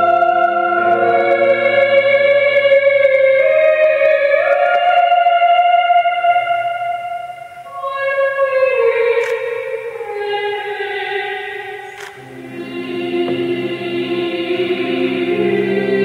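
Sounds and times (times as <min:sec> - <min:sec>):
low keyboard notes: 0:00.0 - 0:05.5, 0:11.8 - 0:16.0.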